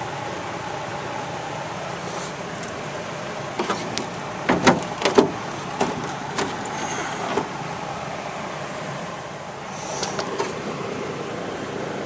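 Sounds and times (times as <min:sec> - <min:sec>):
steady background hiss: 0:00.0 - 0:12.0
knocks and clatters on metal: 0:03.6 - 0:06.7.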